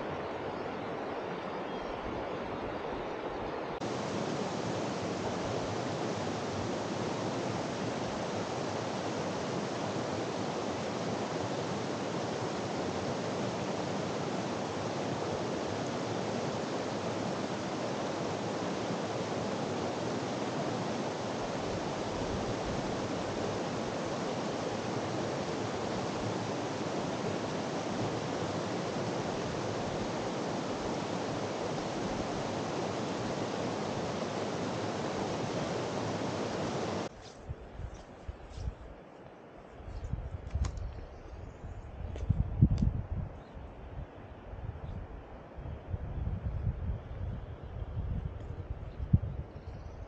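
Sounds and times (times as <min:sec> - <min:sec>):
water rushing over rocks: 0:03.8 - 0:37.1.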